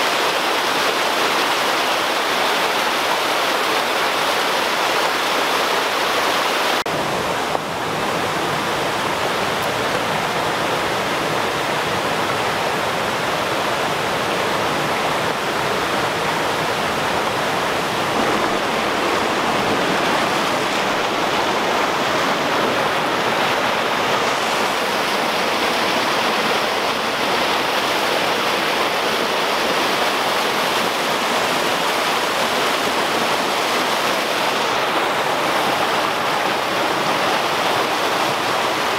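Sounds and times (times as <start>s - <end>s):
creek rushing over boulders: 0.0s - 38.9s.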